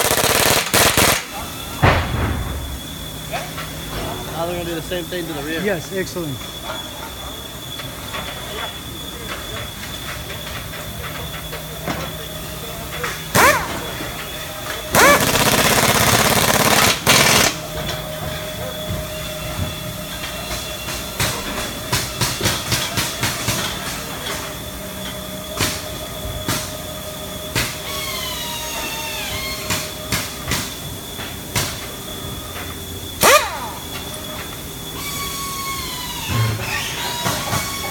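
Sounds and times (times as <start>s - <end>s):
steady machine whine: 0.0s - 37.9s
pneumatic tool hissing: 14.9s - 17.6s, 33.2s - 34.2s.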